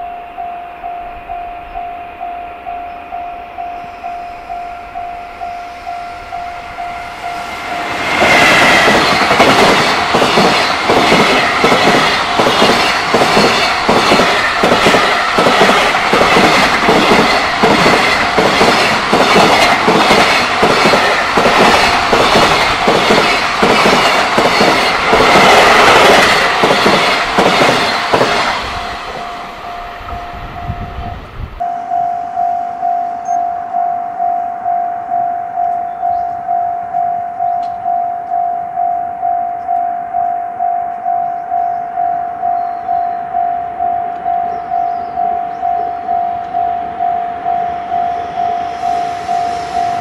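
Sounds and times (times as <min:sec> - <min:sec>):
level crossing warning bell: 0:00.0 - 0:28.1, 0:28.7 - 0:50.0
train wheels clattering over rail joints: 0:08.2 - 0:29.3.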